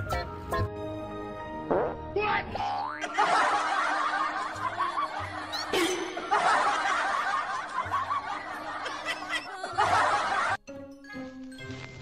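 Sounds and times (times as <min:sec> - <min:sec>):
canned audience laughter: 0:03.0 - 0:10.6.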